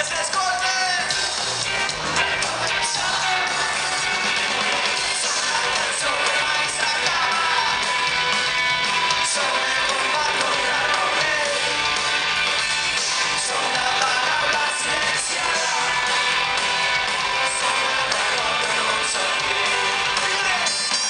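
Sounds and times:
live rock band playing: 0:00.0 - 0:21.0
person singing: 0:02.2 - 0:08.0, 0:09.1 - 0:11.8, 0:13.0 - 0:16.4, 0:17.3 - 0:21.0.

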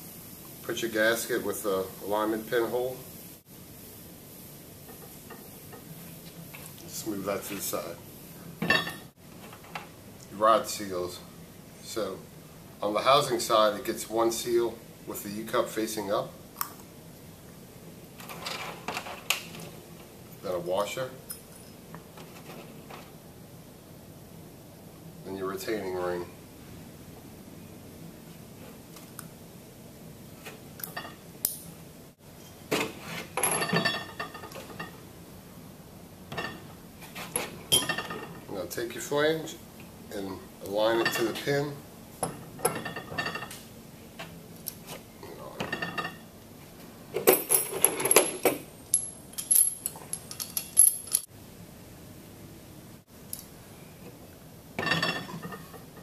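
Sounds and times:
metal parts clinking: 0:47.3 - 0:51.3.

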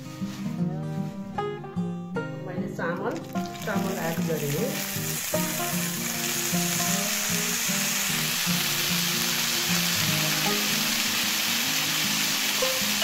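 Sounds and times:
background music: 0:00.0 - 0:13.0
rice sizzling in hot fat: 0:03.2 - 0:13.0.

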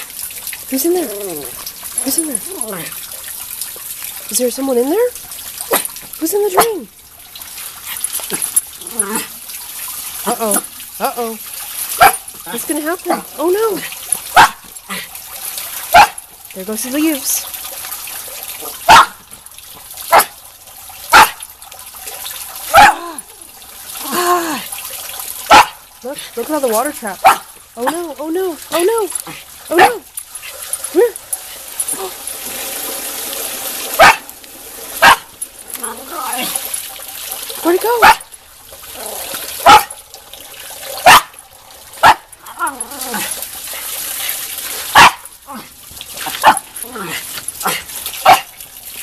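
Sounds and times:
water trickling into drain: 0:00.0 - 0:49.0
dog barking sharply: 0:14.4 - 0:14.6, 0:16.0 - 0:16.2, 0:18.9 - 0:19.2, 0:20.1 - 0:20.3, 0:21.1 - 0:21.4, 0:22.7 - 0:23.0, 0:25.5 - 0:25.8, 0:27.2 - 0:27.4, 0:34.0 - 0:34.3, 0:35.0 - 0:35.3, 0:41.1 - 0:41.3, 0:45.0 - 0:45.2, 0:47.6 - 0:48.5.

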